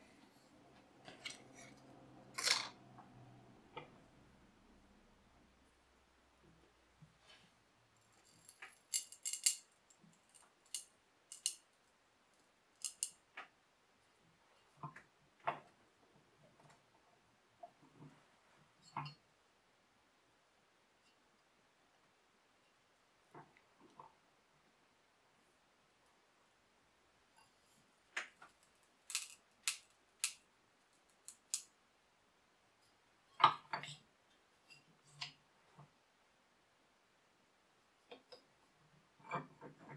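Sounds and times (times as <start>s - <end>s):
metal strip clinking against vise: 8.3s - 9.6s, 29.1s - 30.4s.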